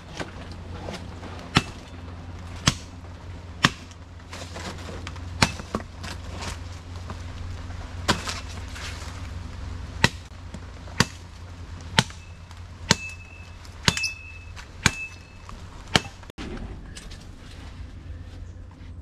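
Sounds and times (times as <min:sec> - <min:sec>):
machete chopping stalk: 0:03.6 - 0:04.0, 0:10.0 - 0:10.3.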